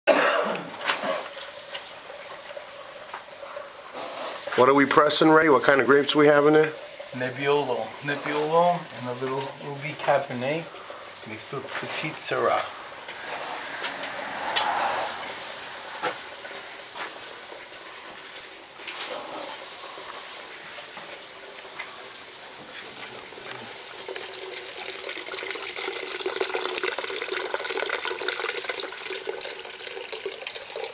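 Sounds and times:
juice splashing into container: 12.8 - 30.9.

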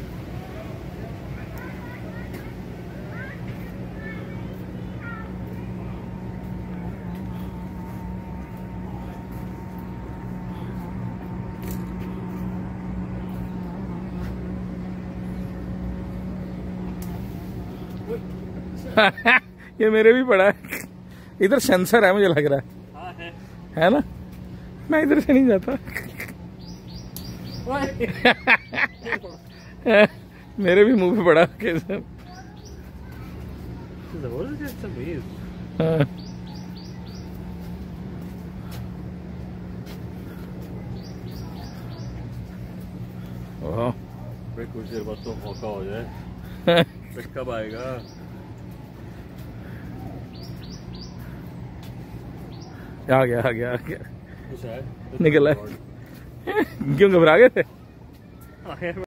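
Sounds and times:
machine humming: 0.0 - 57.8
high falling bird chirps: 26.5 - 29.9, 50.1 - 53.0.

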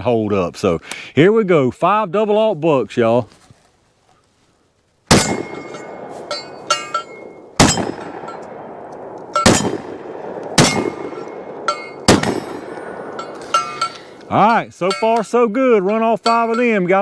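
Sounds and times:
shotgun shots: 5.1 - 13.6
metallic pings: 5.2 - 8.6, 9.3 - 9.9, 10.6 - 17.0.

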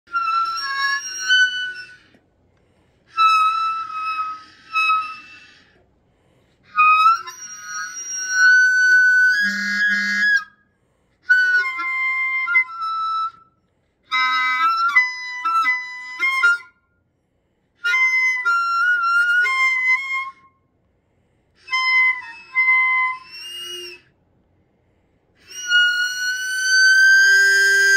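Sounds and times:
clarinet playing classical phrases: 0.1 - 2.2, 3.1 - 5.8, 6.7 - 10.5, 11.2 - 13.4, 14.1 - 16.7, 17.8 - 20.4, 21.6 - 24.1, 25.4 - 27.9.

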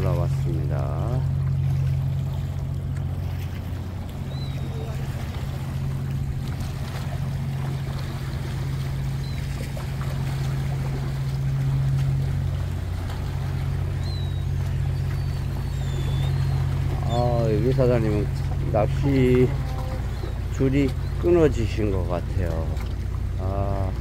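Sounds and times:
boat engine droning: 0.0 - 24.0
faint high chirps: 14.0 - 17.4.

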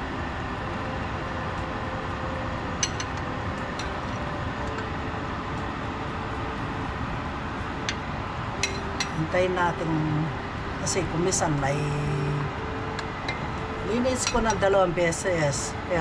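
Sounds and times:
kitchen fan whooshing hum: 0.0 - 16.0
utensil clinking on pot: 2.8 - 3.2, 8.6 - 9.2, 14.2 - 14.6.

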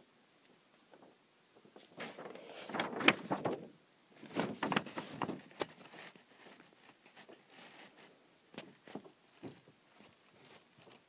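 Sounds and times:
paper rustling on microphone: 0.8 - 11.0.

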